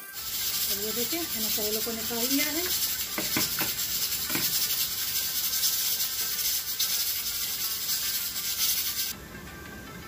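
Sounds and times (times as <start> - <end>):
oil sizzling in a frying pan: 0.0 - 9.2.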